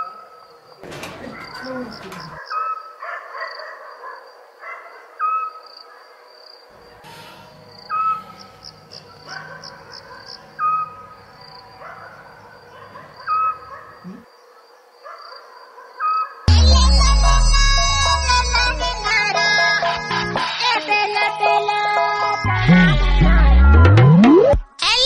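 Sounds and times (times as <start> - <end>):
crickets chirring: 0.0 - 2.7, 5.6 - 15.7.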